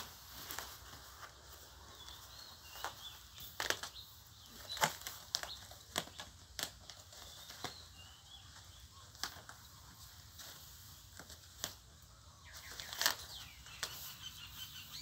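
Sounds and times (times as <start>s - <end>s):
paper sheet crinkling and rustling: 0.0s - 14.5s.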